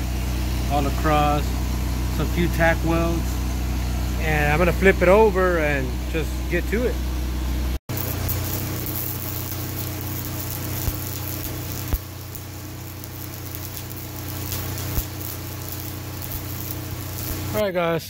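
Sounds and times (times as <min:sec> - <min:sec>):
engine running: 0:00.0 - 0:17.6
sharp pops: 0:07.9 - 0:17.6
welding arc crackling and hissing: 0:07.9 - 0:17.7.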